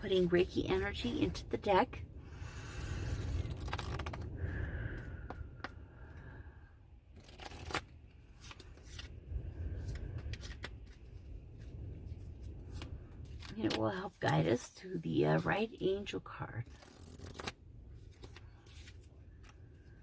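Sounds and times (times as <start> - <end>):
low steady rumble: 0.0 - 20.0
cards sliding and clicking: 7.2 - 9.2, 9.8 - 11.1, 16.7 - 19.6.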